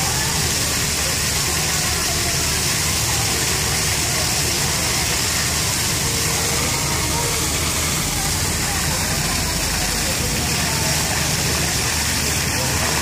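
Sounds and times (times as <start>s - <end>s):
fountain water splashing: 0.0s - 13.0s
road traffic rumble: 0.0s - 13.0s.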